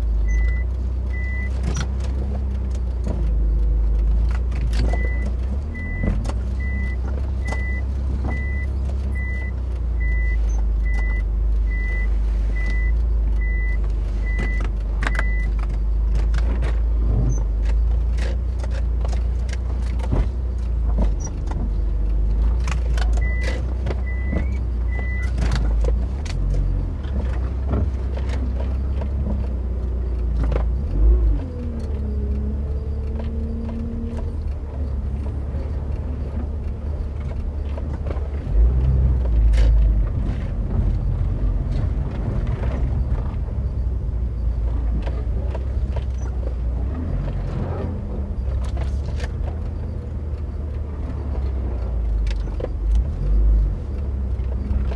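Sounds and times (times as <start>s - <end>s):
engine and road rumble: 0.0s - 54.9s
electronic warning beep: 5.0s - 15.5s.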